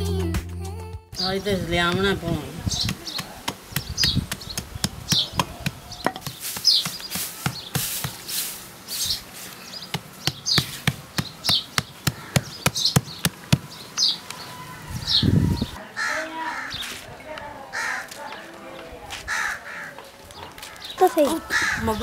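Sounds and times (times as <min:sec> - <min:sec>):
birds chirping: 0:01.2 - 0:22.0
grit scraping: 0:02.8 - 0:11.5
hammer chipping at bricks: 0:09.9 - 0:13.8.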